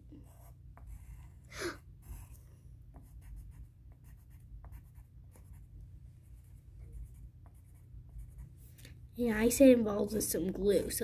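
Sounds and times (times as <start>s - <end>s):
pencil scratching on paper: 0.1s - 5.7s, 6.3s - 8.6s.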